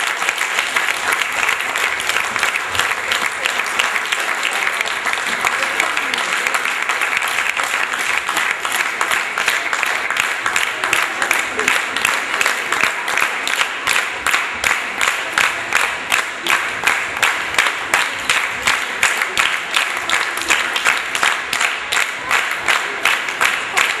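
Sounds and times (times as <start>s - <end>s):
audience clapping in rhythm: 0.0s - 24.0s
general applause: 0.0s - 24.0s.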